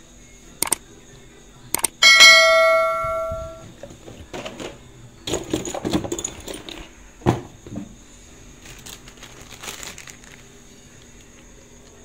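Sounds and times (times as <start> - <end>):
plastic sheet crinkling: 8.6 - 11.4.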